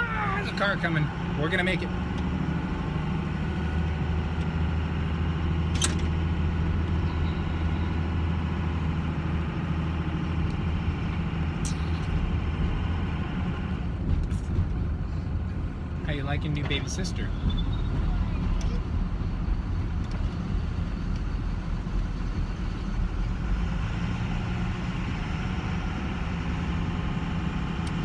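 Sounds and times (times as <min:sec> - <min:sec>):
low engine hum: 0:00.0 - 0:28.0
road and tyre noise: 0:00.0 - 0:28.0.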